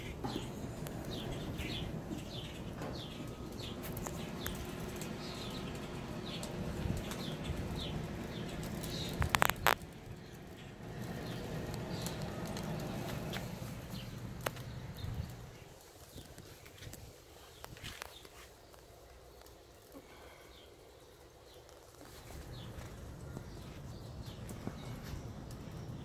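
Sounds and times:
bird chirping: 0.0s - 16.3s
steady low hum: 0.0s - 18.1s.

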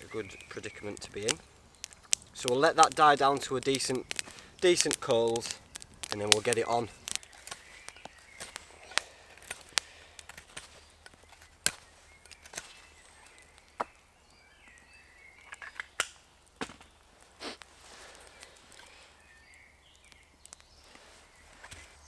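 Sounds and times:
wood cracking and clicking: 0.0s - 14.0s, 15.4s - 19.0s.

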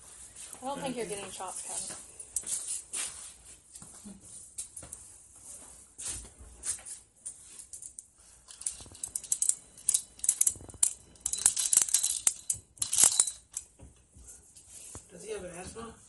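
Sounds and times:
crinkling rattling handling clicks: 8.5s - 13.7s.

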